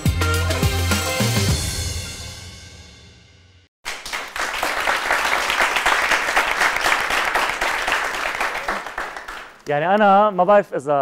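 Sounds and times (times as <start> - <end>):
audience applauding: 3.8 - 10.7.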